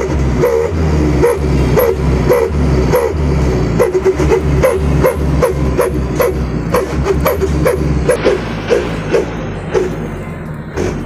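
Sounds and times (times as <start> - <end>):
music with heavy bass beat: 3.8 - 11.0.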